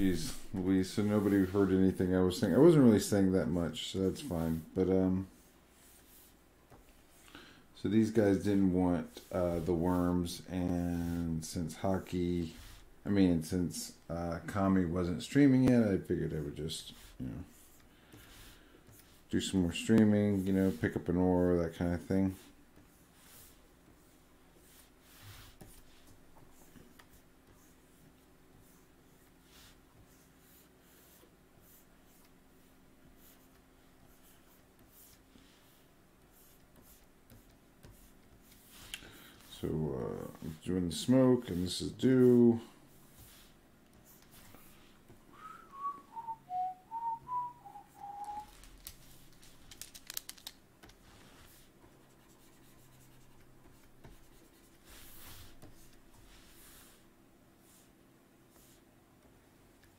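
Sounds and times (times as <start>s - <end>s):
low steady hum: 0.0s - 59.9s
stylus scratching on a screen: 16.7s - 45.0s, 51.0s - 57.0s
person whistling a tune: 45.3s - 48.6s.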